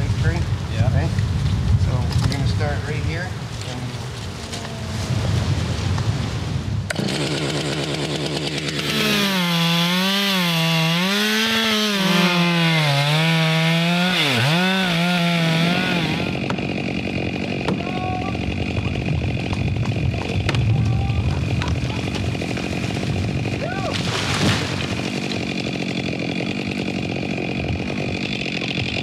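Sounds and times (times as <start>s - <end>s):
chainsaw cutting wood: 6.9s - 29.0s.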